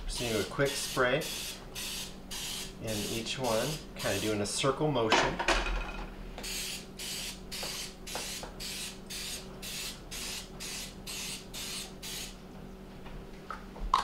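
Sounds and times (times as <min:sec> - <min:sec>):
aerosol spray hissing in short bursts: 0:00.2 - 0:04.4, 0:06.4 - 0:12.4.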